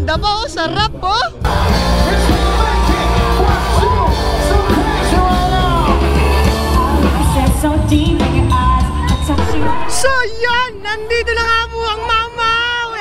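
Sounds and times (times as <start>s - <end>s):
heavy bass: 0.0s - 13.0s
live band playing: 1.4s - 10.3s
person singing: 1.5s - 9.9s.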